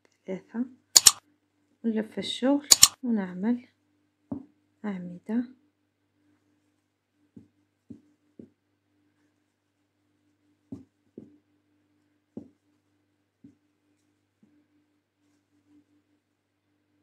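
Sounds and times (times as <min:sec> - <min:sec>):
soft crochet hook taps: 0:04.3 - 0:04.5, 0:07.3 - 0:08.6, 0:10.7 - 0:11.4, 0:12.4 - 0:12.6.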